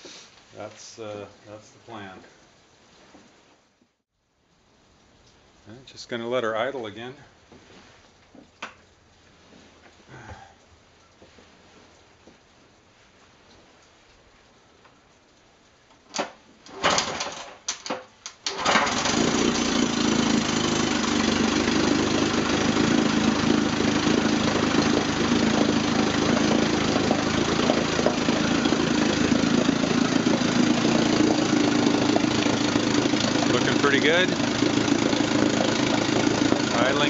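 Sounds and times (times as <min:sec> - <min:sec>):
outboard motor starting and idling: 0:16.6 - 0:17.6, 0:18.4 - 0:37.0.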